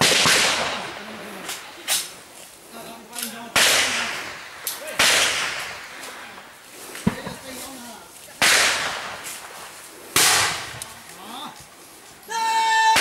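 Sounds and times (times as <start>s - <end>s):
gunshots echoing: 0.0s - 2.2s, 3.4s - 6.4s, 8.4s - 10.8s.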